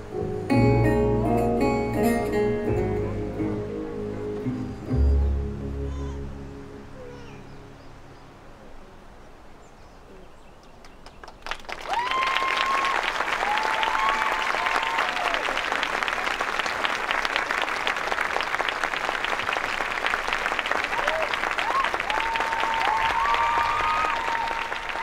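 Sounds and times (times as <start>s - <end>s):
crowd applause: 11.0s - 25.0s
crowd cheering: 11.4s - 25.0s.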